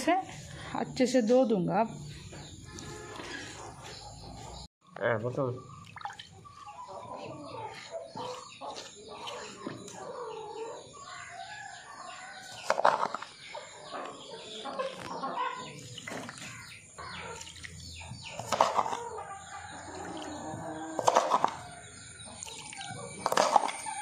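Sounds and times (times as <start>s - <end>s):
chickens clucking: 5.6s - 24.0s.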